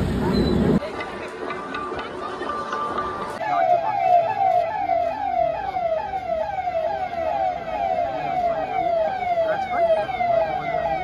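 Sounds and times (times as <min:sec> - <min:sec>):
police siren sweeping: 0:03.4 - 0:11.0.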